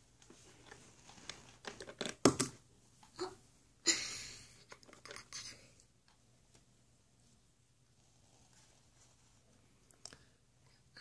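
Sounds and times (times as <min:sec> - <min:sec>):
plastic toys clicking and knocking: 0:01.6 - 0:02.6, 0:04.7 - 0:05.5.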